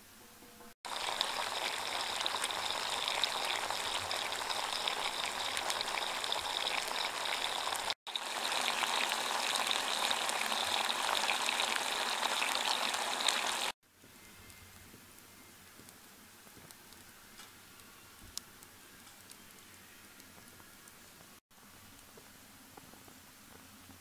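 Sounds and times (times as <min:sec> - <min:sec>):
meat sizzling in a frying pan: 0:00.9 - 0:13.8.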